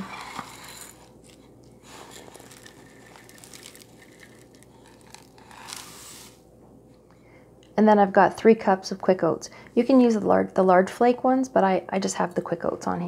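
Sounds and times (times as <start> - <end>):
cup scraping dry grain: 0.0 - 6.4
grain pouring into bowl: 0.0 - 6.4.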